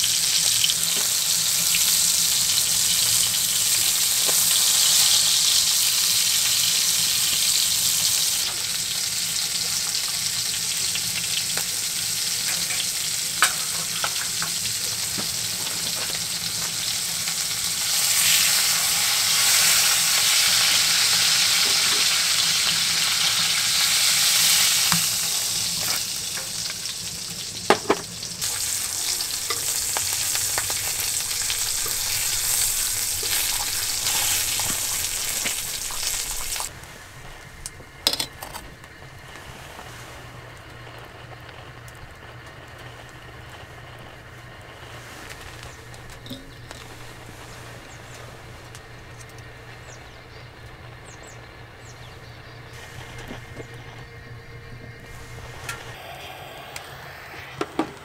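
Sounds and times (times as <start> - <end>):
food sizzling in pan: 0.0 - 36.7.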